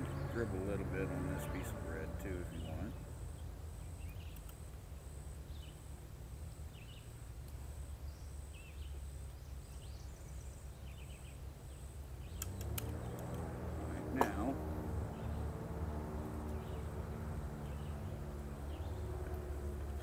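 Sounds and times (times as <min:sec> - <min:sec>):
high pulsing buzz: 0:00.0 - 0:07.9, 0:12.9 - 0:20.0
bird chirps: 0:01.4 - 0:04.6, 0:16.3 - 0:20.0.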